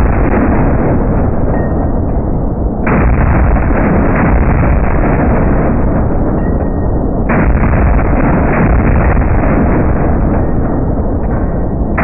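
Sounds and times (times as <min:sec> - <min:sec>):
slowed gunfire rumble: 0:00.0 - 0:12.0.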